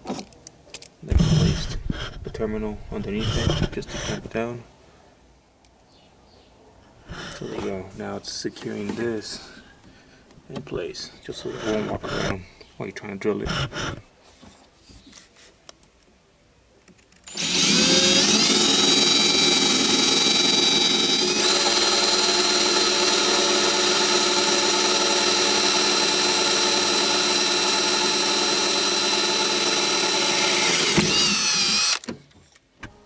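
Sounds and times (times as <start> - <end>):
cordless drill whining: 3.0 - 4.2, 11.5 - 12.4, 17.3 - 32.1.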